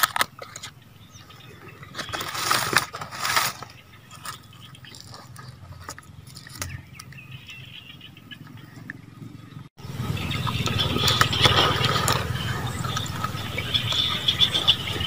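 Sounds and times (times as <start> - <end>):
dry leaf wrapping crackling: 1.9 - 7.2.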